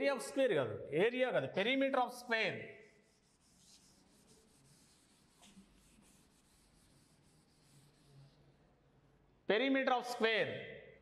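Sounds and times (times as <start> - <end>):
cloth wiping a chalkboard: 2.7 - 8.7.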